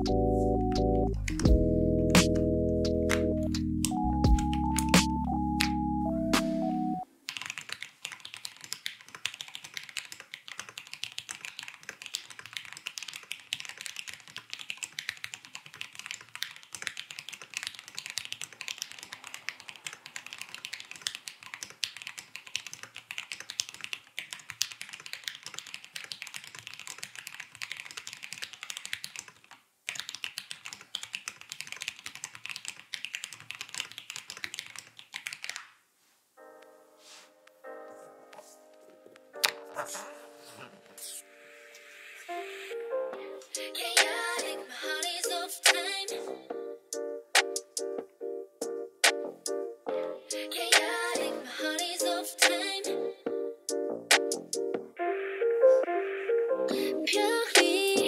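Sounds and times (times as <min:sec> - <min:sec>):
keyboard typing clacks: 0:03.0 - 0:05.8, 0:07.3 - 0:35.7.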